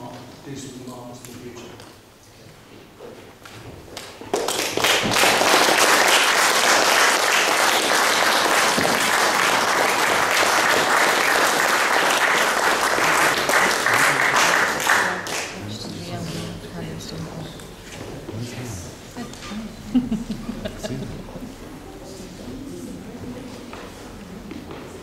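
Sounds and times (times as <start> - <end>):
audience applauding: 4.0 - 15.8.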